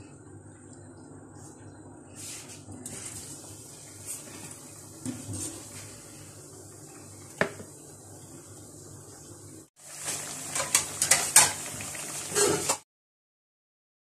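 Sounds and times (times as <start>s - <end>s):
low steady hum: 0.0s - 9.7s.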